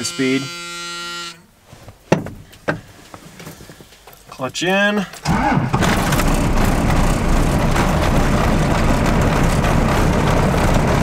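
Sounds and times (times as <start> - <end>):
diesel engine clattering: 5.2 - 11.0.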